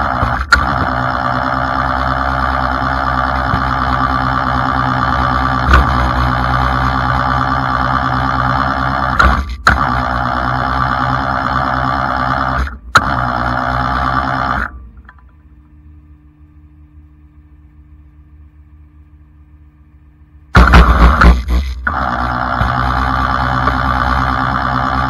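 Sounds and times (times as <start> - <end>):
hydraulic winch whining: 0.0 - 14.8, 20.6 - 25.0
low engine hum: 0.0 - 25.0.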